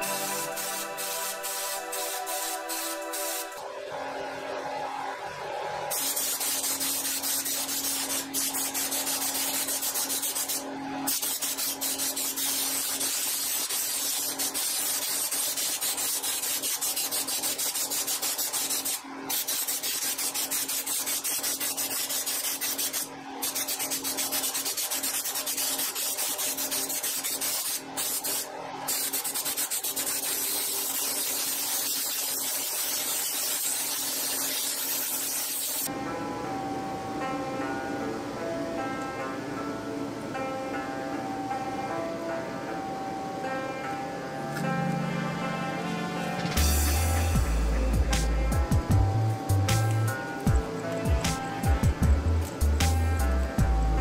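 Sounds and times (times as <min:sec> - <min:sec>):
spray gun hissing: 0:00.0 - 0:03.6, 0:05.9 - 0:35.9.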